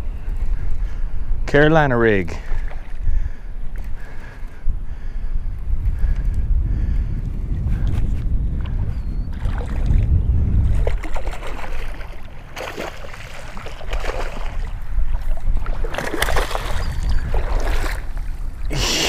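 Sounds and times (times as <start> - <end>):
wind buffeting microphone: 0.0 - 19.0
fish splashing in water: 10.7 - 14.7, 15.3 - 18.2.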